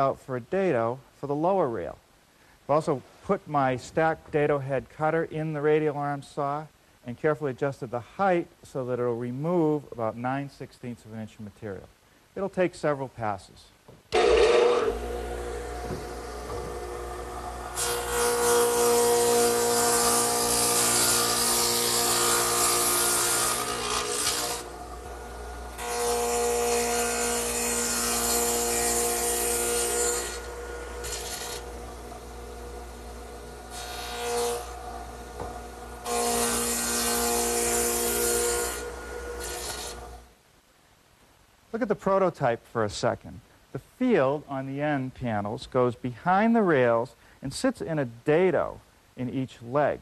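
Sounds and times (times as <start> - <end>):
saw cutting wood: 14.1 - 40.2
saw motor humming: 14.1 - 40.2.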